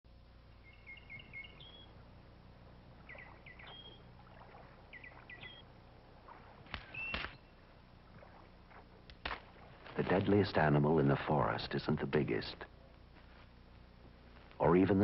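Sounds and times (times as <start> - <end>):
songbird chirping: 0.1 - 9.0
faint low hum: 0.1 - 15.0.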